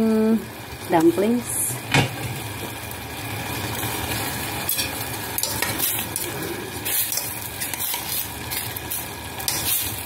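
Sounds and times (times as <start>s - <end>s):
broth simmering in a pot: 0.0s - 10.0s
utensil scraping against pot: 4.7s - 10.0s.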